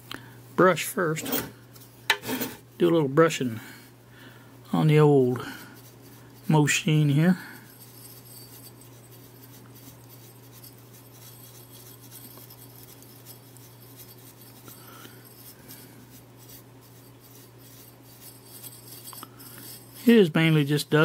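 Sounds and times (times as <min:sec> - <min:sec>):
paintbrush scrubbing circuit board: 0:08.2 - 0:14.7, 0:15.3 - 0:19.0.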